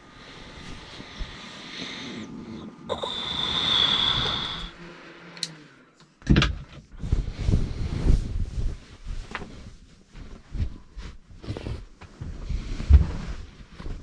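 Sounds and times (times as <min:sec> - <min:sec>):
bedding rustling: 0:00.0 - 0:02.6, 0:06.8 - 0:14.0.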